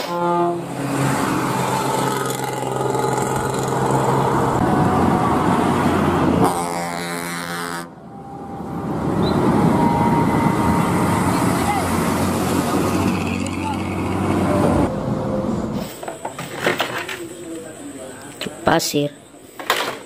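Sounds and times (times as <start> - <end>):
bus air horns blasting: 0.0 - 0.8, 6.4 - 11.6
engine and highway traffic noise: 0.0 - 20.0.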